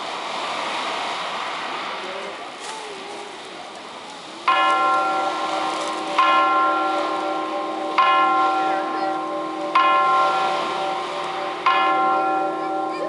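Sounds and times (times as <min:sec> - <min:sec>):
large bell tolling: 0:04.4 - 0:13.0.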